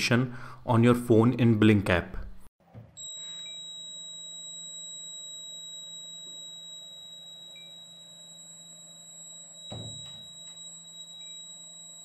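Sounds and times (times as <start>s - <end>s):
high-pitched alarm buzzer tone: 3.0s - 12.0s.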